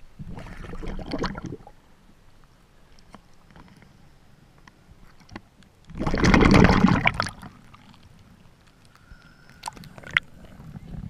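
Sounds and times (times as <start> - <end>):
seawater splashing: 5.9 - 8.0.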